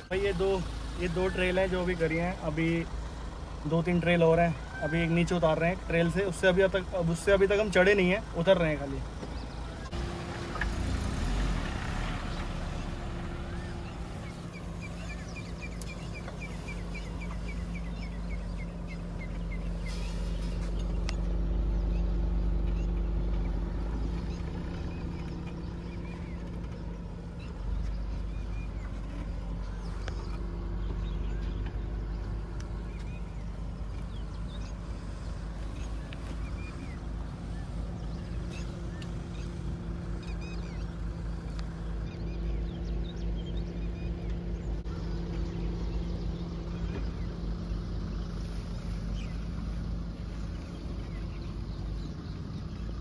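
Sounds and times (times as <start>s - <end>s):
car engine running at low revs: 0.0s - 53.0s
bird chirping: 3.8s - 53.0s.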